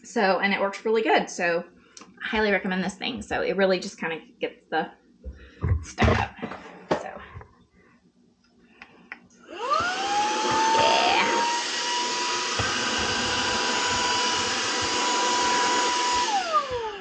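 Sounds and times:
handheld vacuum running: 0:09.5 - 0:17.0.

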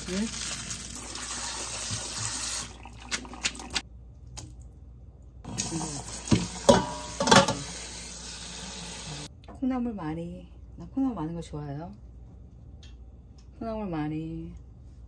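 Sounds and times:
tap water running into a sink: 0:00.0 - 0:03.8, 0:05.5 - 0:09.3
metal pots and utensils clanking: 0:06.3 - 0:07.8.

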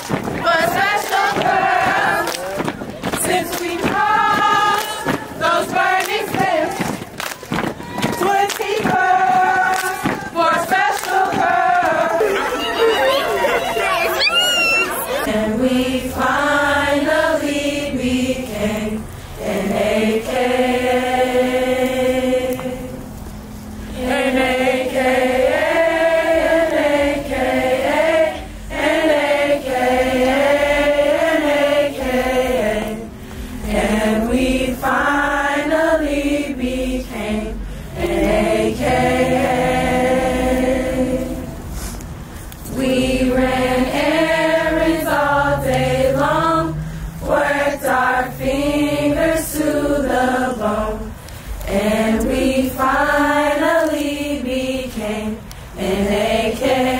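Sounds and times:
women singing unaccompanied: 0:00.4 - 0:23.1, 0:23.9 - 0:41.6, 0:42.7 - 0:56.9.

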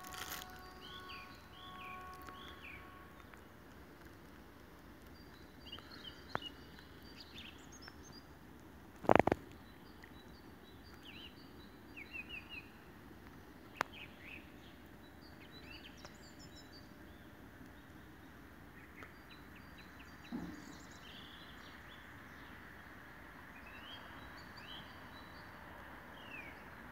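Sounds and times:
songbirds chirping: 0:00.0 - 0:26.9.

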